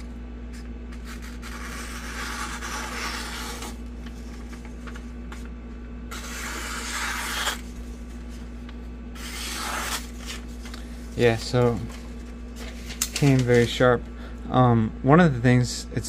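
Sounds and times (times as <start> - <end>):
knife blade slicing paper: 6.1 - 7.7, 9.2 - 10.5.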